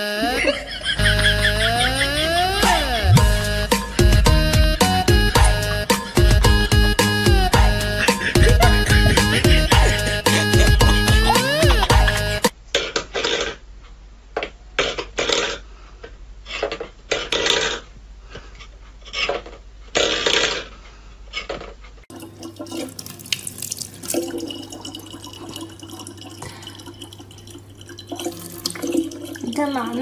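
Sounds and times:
tap water running into bottle: 22.1 - 30.0.

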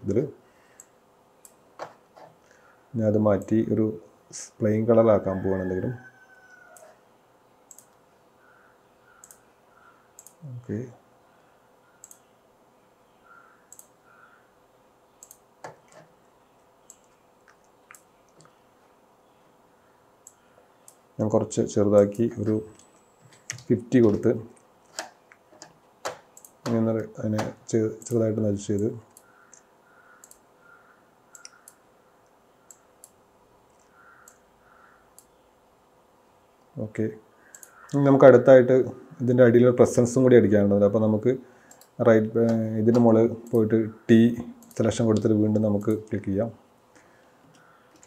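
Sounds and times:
computer mouse clicking: 7.7 - 8.0, 9.1 - 9.5, 10.2 - 10.4, 12.0 - 12.3, 13.7 - 14.0, 15.2 - 16.1, 16.8 - 18.6, 20.2 - 21.0, 22.0 - 26.8, 27.4 - 35.4, 37.4 - 38.0, 41.6 - 43.7, 44.6 - 46.0, 47.5 - 48.0.

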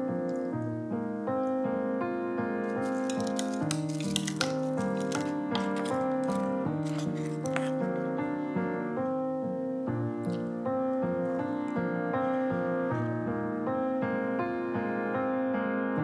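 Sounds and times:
slow gentle piano music: 0.0 - 16.0.

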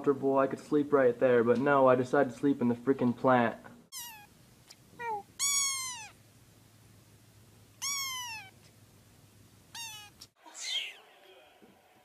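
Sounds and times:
kitten meowing: 3.9 - 4.3, 5.0 - 6.2, 7.8 - 8.7, 9.7 - 11.0.

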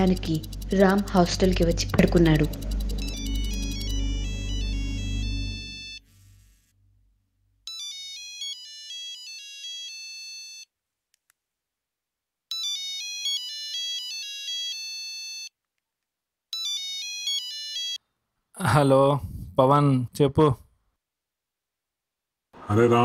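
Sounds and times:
phone ringtone melody: 0.0 - 6.1, 7.7 - 10.7, 12.5 - 15.5, 16.5 - 18.0.

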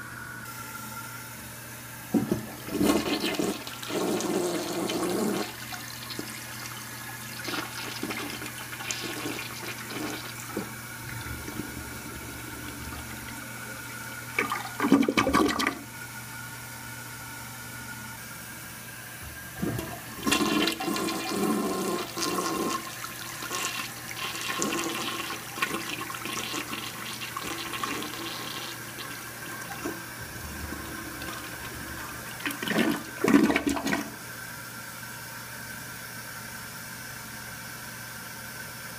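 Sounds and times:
toilet flushing: 0.0 - 35.8
toilet siphoning gurgle: 1.8 - 16.2, 18.9 - 34.8.

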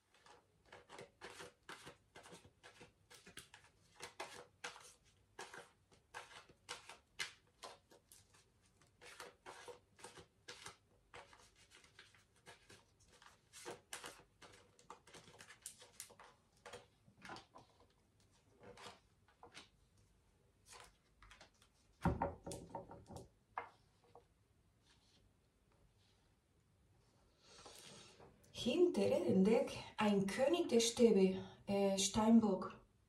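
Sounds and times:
cards shuffling clicks and rustles: 0.1 - 19.8, 20.6 - 22.0.

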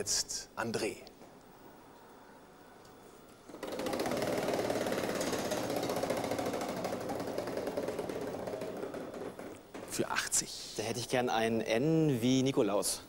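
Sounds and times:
prize wheel clicking: 3.5 - 9.6.

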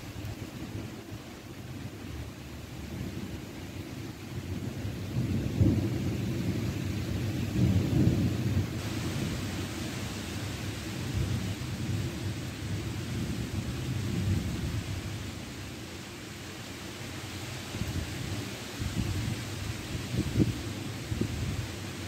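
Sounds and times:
thunder rumbling: 0.0 - 16.0
rain hissing: 0.0 - 22.0.

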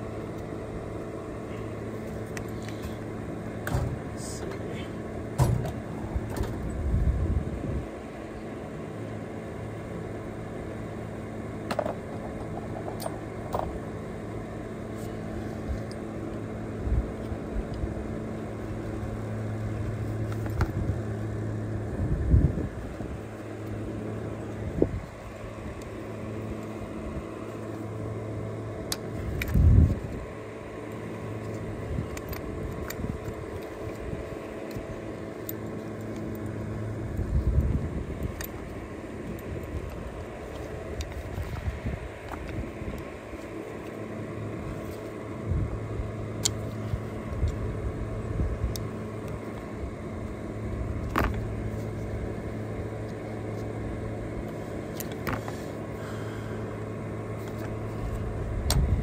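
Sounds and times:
portable fan humming: 0.0 - 59.0
small clicks of tools: 46.4 - 46.7.

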